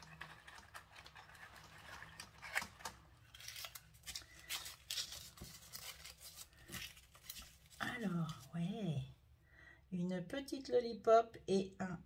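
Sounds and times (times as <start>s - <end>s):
paper rustling: 0.0s - 8.6s.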